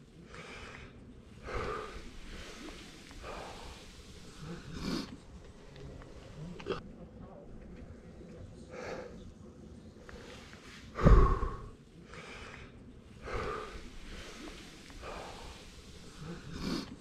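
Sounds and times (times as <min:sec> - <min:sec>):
person breathing hard: 0:00.0 - 0:05.3, 0:08.7 - 0:09.2, 0:10.1 - 0:17.0.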